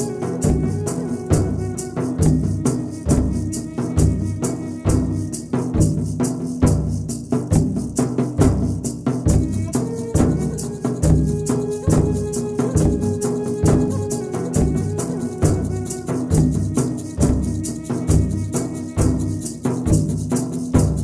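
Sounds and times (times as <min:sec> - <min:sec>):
drum beat: 0:00.0 - 0:21.0
shaker rattling: 0:00.0 - 0:21.0.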